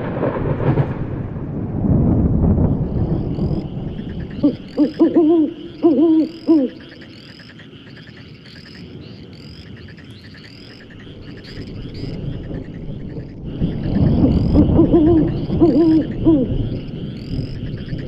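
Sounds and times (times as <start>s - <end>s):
thunder rumbling: 0.0s - 7.3s, 8.7s - 18.0s
chorus of high chirps and trills: 3.4s - 7.6s
owl hooting: 3.4s - 8.0s, 10.3s - 18.0s.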